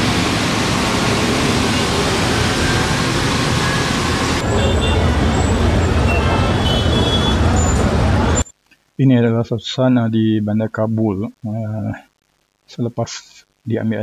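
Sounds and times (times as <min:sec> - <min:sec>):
low street rumble: 0:00.0 - 0:08.4
vehicles passing on wet road: 0:00.0 - 0:08.4.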